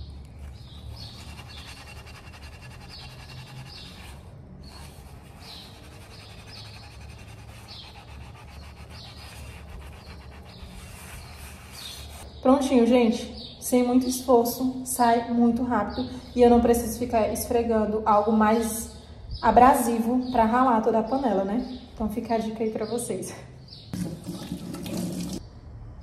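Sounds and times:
sponge scrubbing a pot: 0.4 - 12.2.

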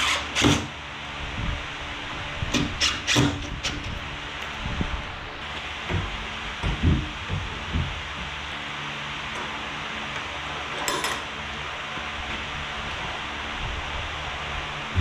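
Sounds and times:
low hum: 3.5 - 15.0.

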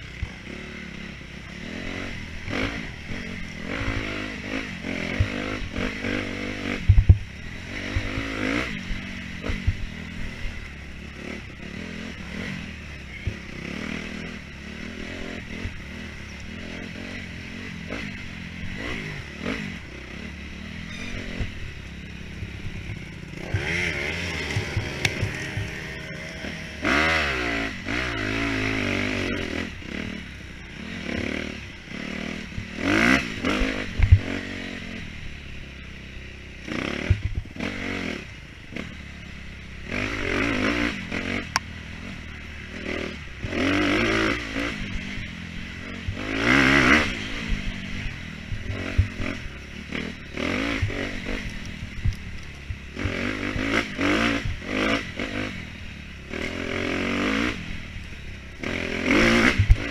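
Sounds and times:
motorcycle engine revving: 0.0 - 59.9
bike rattling over rough ground: 20.7 - 31.4.

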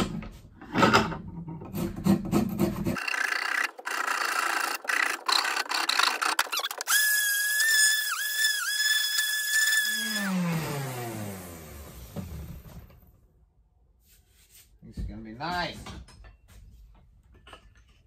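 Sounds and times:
hand rasp scraping wood: 1.7 - 11.1
orbital sander whining: 3.0 - 12.7.

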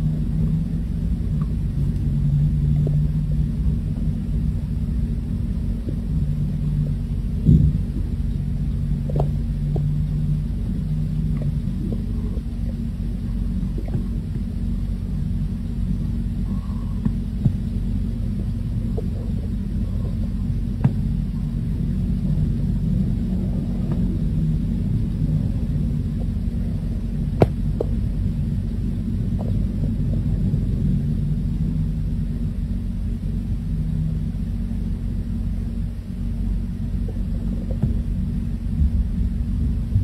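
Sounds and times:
steady low rumble: 0.0 - 40.0.

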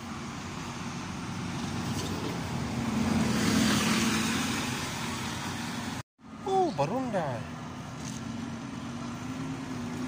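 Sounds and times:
bus driving past: 0.0 - 6.5.

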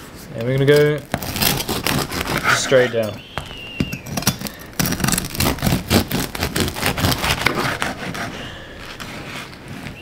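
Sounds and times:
knife sawing through bread crust: 1.2 - 3.0, 4.8 - 10.0.

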